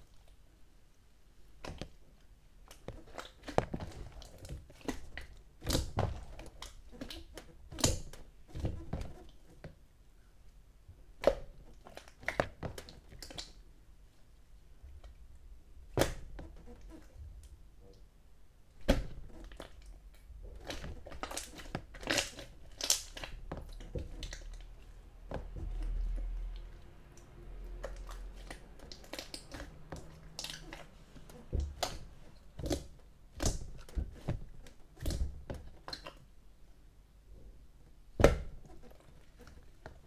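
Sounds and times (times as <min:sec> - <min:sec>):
slime squished by hand: 0:18.8 - 0:36.3.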